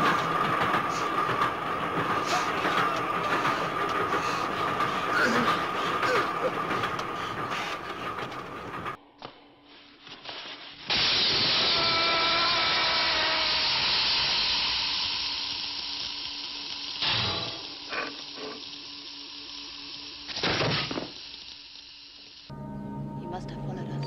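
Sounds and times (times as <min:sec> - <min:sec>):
crackling bursts: 0:00.0 - 0:22.5
hissing spray of sparks: 0:09.7 - 0:22.5.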